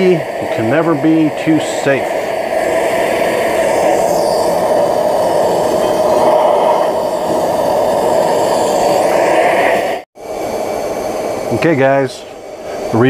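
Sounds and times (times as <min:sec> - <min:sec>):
gas torch flame rushing: 0:00.0 - 0:13.0.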